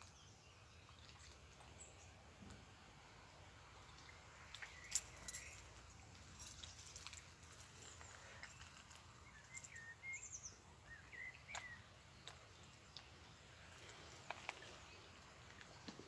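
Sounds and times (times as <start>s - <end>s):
bird chirps: 7.9s - 13.0s.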